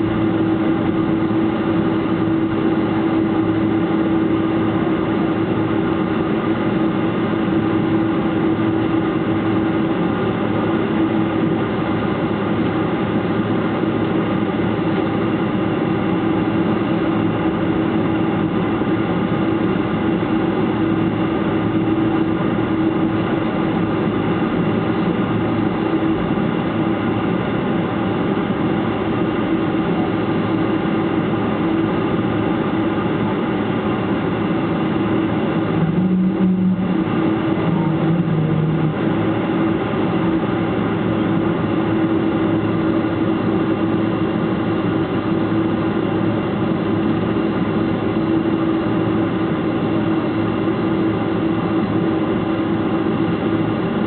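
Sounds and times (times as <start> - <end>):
jet engines droning: 0.0 - 54.0
steady cabin hum: 0.0 - 54.0
short low hum: 33.3 - 43.1.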